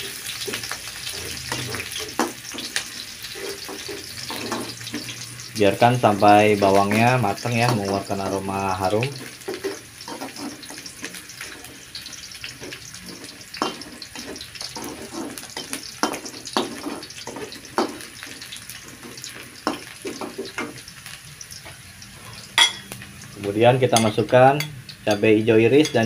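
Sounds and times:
food sizzling in hot oil: 0:00.0 - 0:26.0
metal spatula scraping a wok: 0:00.1 - 0:05.2, 0:09.2 - 0:20.8.

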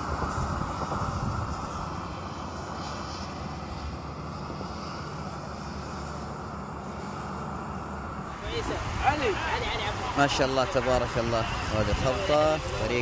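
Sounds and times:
wind rumble on microphone: 0:00.0 - 0:10.2
floodwater rushing: 0:07.2 - 0:13.0.

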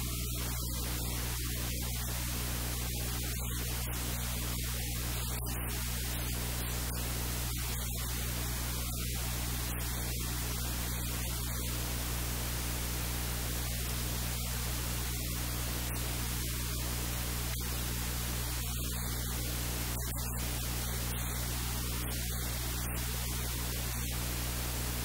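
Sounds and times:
low electrical hum: 0:00.0 - 0:25.0.

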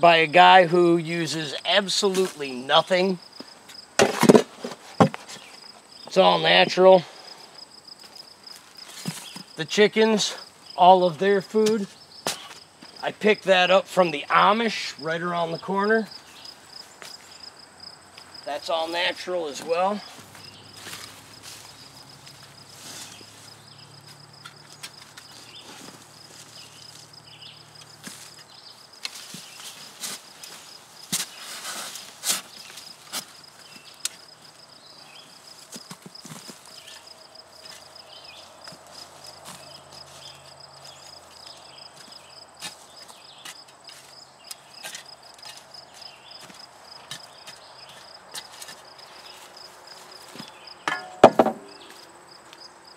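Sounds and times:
sharp knocks and scrapes: 0:04.0 - 0:05.6, 0:08.8 - 0:09.5, 0:43.4 - 0:45.6, 0:46.4 - 0:48.9, 0:50.4 - 0:52.0
high insect trill: 0:04.9 - 0:52.9
soft scuffs and knocks: 0:20.0 - 0:27.1, 0:28.0 - 0:34.2.

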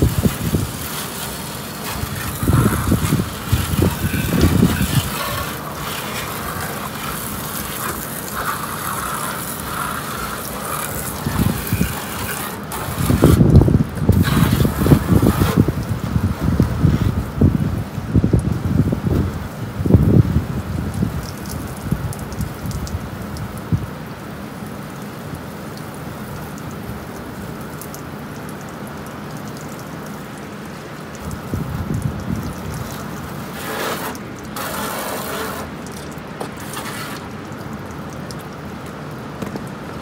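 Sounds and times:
pressure washer spraying: 0:00.0 - 0:17.3, 0:32.5 - 0:38.4.

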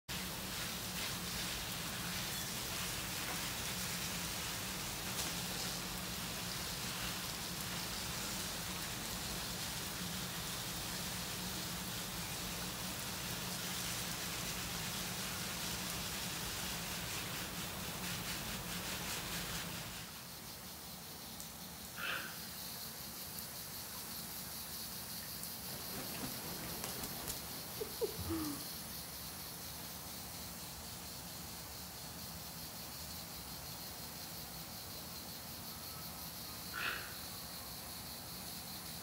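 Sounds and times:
water mist spraying: 0:00.1 - 0:22.6, 0:25.4 - 0:30.1.

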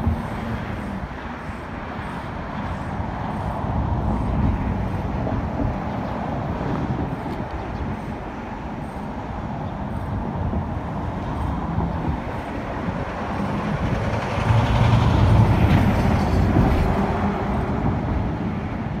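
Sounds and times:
low rumble of traffic: 0:00.0 - 0:19.0
vehicle passing close by: 0:12.7 - 0:19.0.

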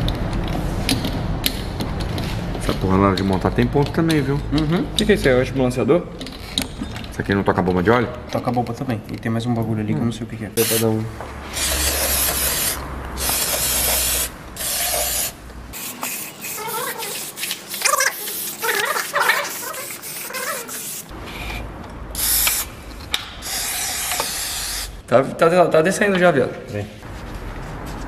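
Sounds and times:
aerosol spray can hissing bursts: 0:11.6 - 0:21.1, 0:22.2 - 0:22.7.

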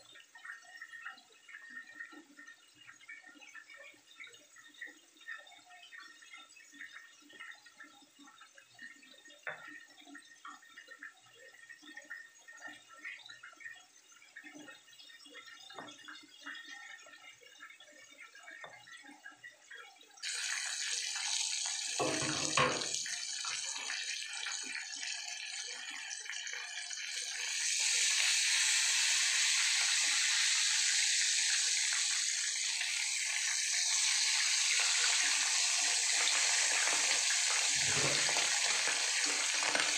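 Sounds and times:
fish sizzling in hot oil: 0:20.2 - 0:39.9.

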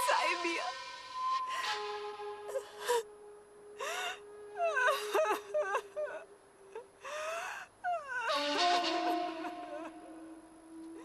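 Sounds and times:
woman wailing and sobbing: 0:03.8 - 0:10.3.

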